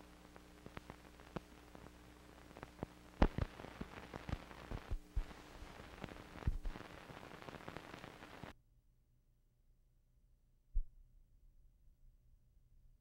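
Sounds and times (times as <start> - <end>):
film crackle and pops: 0.0 - 8.6
low hum and hiss: 0.0 - 8.6.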